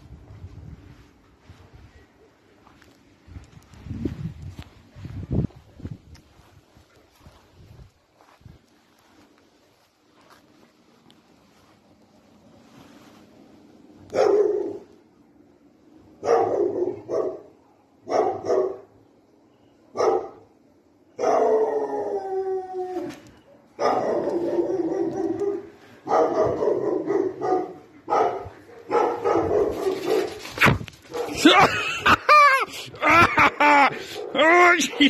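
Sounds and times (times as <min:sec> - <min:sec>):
dog barking: 0:14.1 - 0:14.8, 0:16.2 - 0:18.9, 0:20.0 - 0:20.4, 0:21.2 - 0:21.6, 0:23.6 - 0:30.5, 0:31.1 - 0:31.4, 0:34.1 - 0:35.0
dog howling: 0:23.9 - 0:25.7.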